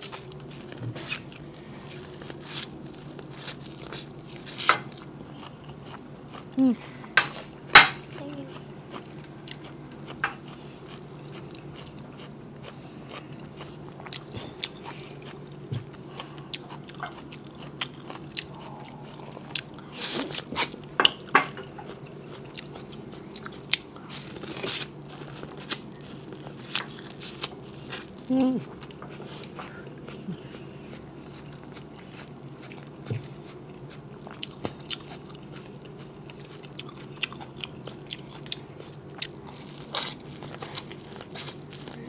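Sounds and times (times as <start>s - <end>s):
biting and chewing corn: 22.4s - 42.0s.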